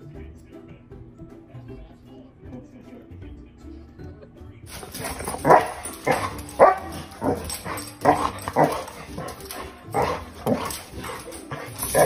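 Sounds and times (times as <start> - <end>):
dog barking: 4.8 - 12.0.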